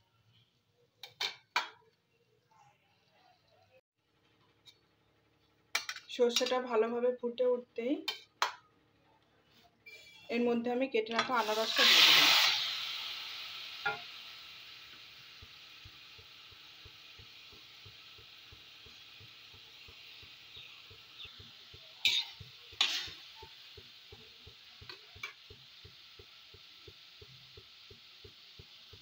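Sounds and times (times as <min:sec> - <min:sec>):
pineapple sizzling in hot oil: 0:11.2 - 0:29.0.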